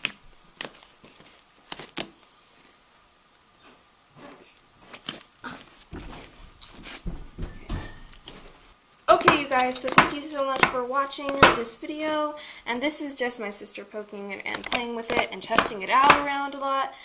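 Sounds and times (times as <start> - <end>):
soft squishing and crackling pops: 8.8 - 12.3.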